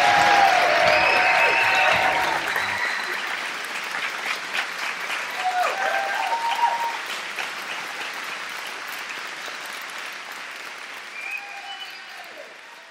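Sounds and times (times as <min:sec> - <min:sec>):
crowd calls: 0:00.0 - 0:03.4
crowd applauding: 0:00.0 - 0:12.9.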